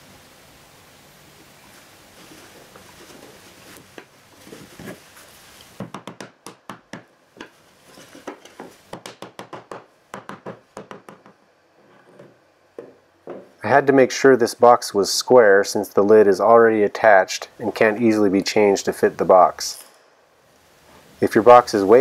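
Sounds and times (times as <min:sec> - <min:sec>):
faint handling of wood: 0:01.6 - 0:05.8, 0:07.3 - 0:08.9, 0:11.3 - 0:13.6.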